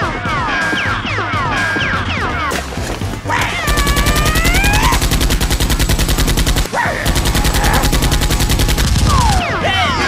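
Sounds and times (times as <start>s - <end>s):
rapid automatic gunfire: 3.6s - 9.4s.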